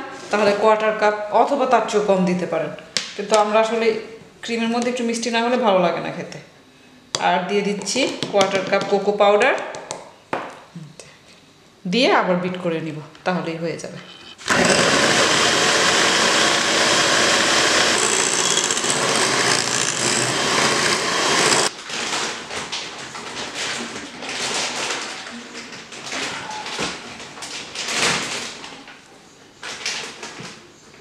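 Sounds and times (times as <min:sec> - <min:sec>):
electric hand mixer running: 0:14.4 - 0:21.7.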